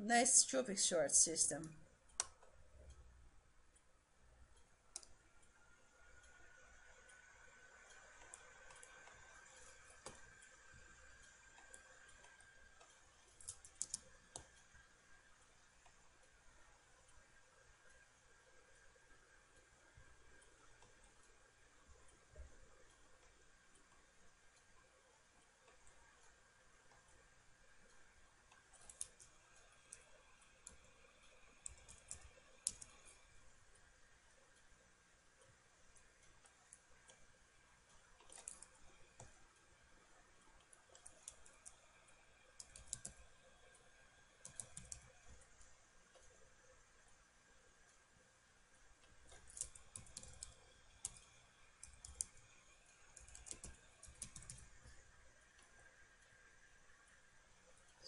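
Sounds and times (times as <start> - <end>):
keyboard keys typing: 8.2 - 14.7, 28.6 - 33.3, 38.2 - 39.4, 40.6 - 41.8, 42.5 - 45.6, 49.0 - 55.0.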